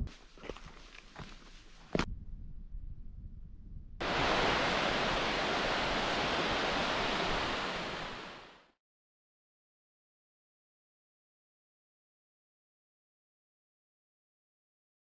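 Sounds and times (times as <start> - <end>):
fast-falling water rushing: 4.0 - 8.7.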